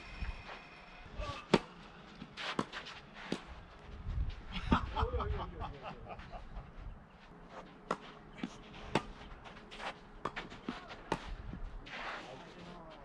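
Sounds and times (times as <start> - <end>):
tennis ball struck by rackets: 1.5 - 3.5, 7.8 - 9.2.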